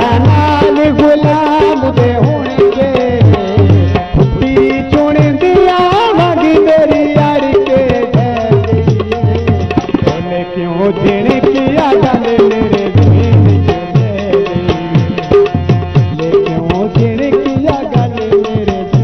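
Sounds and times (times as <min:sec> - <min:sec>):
bending melody line: 0:00.0 - 0:19.0
hand drum bass strokes: 0:03.6 - 0:05.1.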